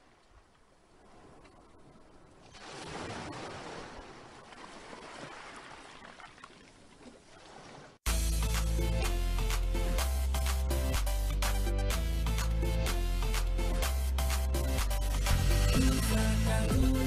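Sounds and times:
loud music with heavy bass beat: 8.1s - 17.0s.

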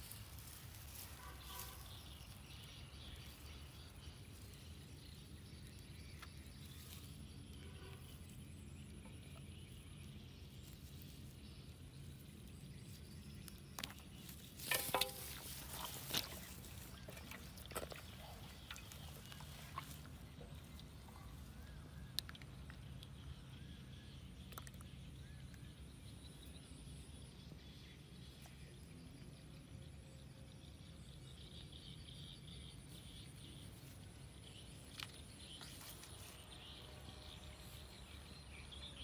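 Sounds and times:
rustling on dry grass: 0.0s - 7.2s, 14.2s - 21.1s
low outdoor background: 0.0s - 39.0s
knocks and scrapes: 13.8s - 20.5s.

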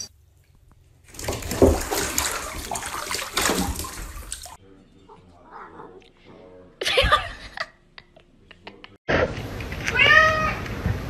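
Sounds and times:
water splashing in bathtub: 1.0s - 4.6s.

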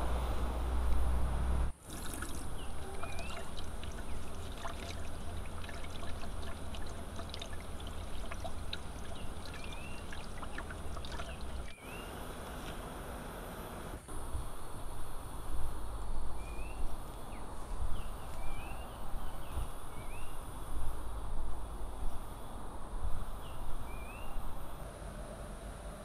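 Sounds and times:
water drips: 1.8s - 11.8s
water splashing and trickling: 1.8s - 11.8s
bird chirps: 2.5s - 4.8s, 7.8s - 12.2s.

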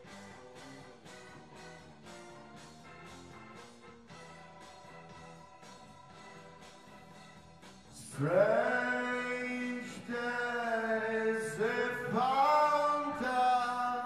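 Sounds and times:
man singing long wordless notes: 7.9s - 14.0s.

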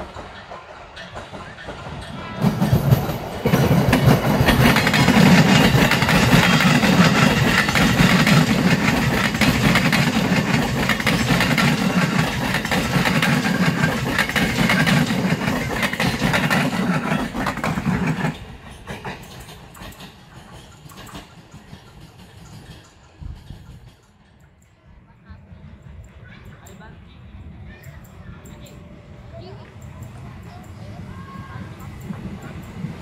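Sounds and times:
wheels clattering over rail joints: 0.0s - 24.6s
electric train running past: 0.0s - 33.0s.

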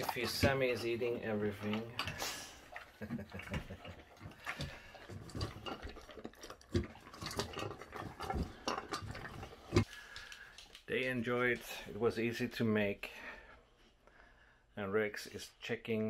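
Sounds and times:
dog crunching dry kibble: 0.0s - 11.2s.

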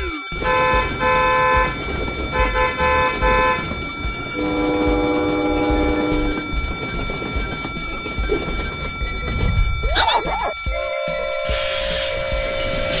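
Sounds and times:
running train rumble: 0.0s - 13.0s
train horn toots and blast: 0.4s - 6.5s, 10.7s - 13.0s.

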